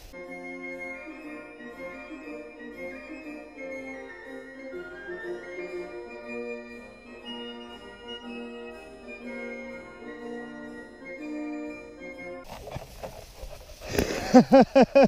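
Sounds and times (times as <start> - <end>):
organ-like keyboard melody: 0.0 - 12.5
outdoor noise: 12.4 - 15.0.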